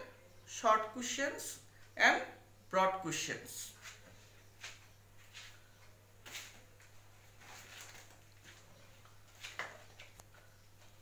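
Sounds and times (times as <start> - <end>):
low electrical hum: 0.0 - 11.0
paper rustling and crinkling: 7.2 - 10.2.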